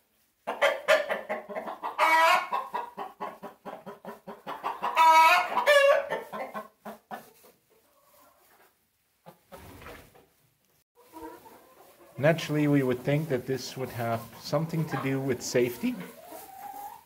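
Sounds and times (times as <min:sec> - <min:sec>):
hens clucking: 0:00.4 - 0:17.0
loud drawn-out chicken calls: 0:00.5 - 0:07.3.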